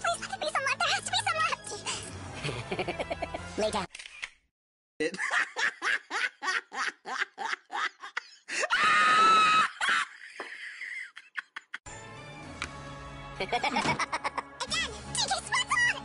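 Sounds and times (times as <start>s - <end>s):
person laughing rhythmically: 2.4s - 3.5s, 5.0s - 8.7s, 9.6s - 11.8s, 13.4s - 14.6s.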